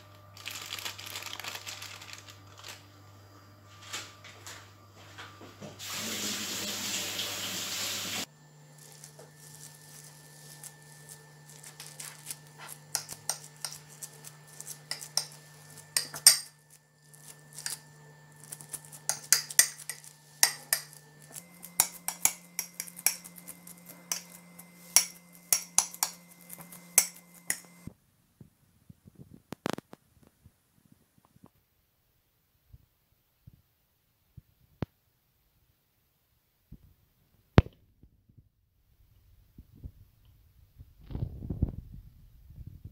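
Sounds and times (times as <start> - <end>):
low steady hum: 7.8 - 29.6
metal spoon scraping ceramic bowl: 12.6 - 16.7, 18.5 - 27.9.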